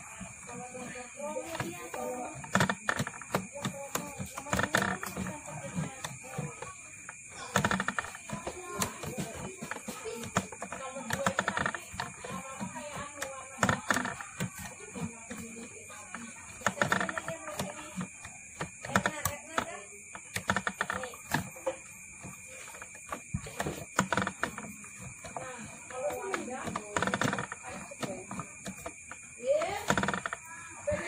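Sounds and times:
winding machine clicking and clattering: 1.2 - 31.0.

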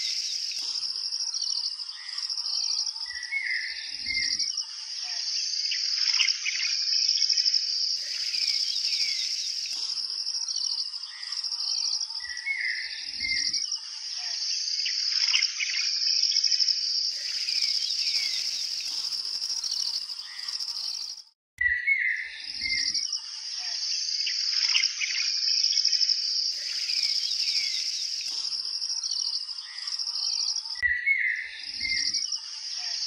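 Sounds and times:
insects trilling: 0.0 - 21.4, 22.3 - 33.0
small birds chirping: 0.0 - 33.0.

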